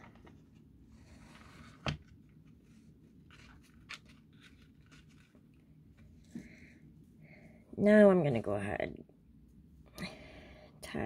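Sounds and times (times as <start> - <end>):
hands rustling twine: 2.4 - 6.4.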